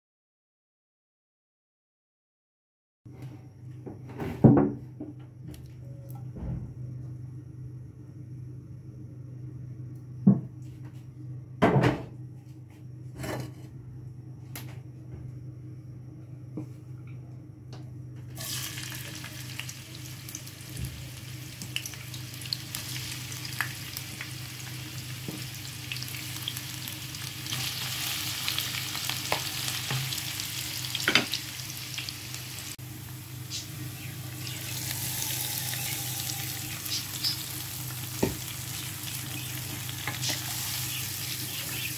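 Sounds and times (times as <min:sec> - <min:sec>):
low steady hum: 0:03.2 - 0:41.9
onions sizzling in oil: 0:18.4 - 0:41.9.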